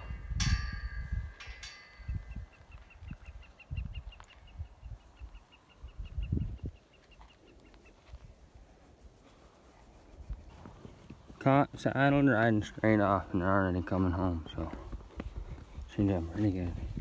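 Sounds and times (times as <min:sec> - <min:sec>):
bird chirping rapidly: 0:02.1 - 0:08.0.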